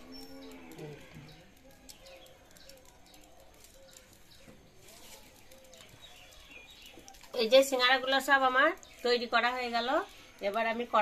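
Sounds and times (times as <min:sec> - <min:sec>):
bird cooing: 0:03.6 - 0:04.2.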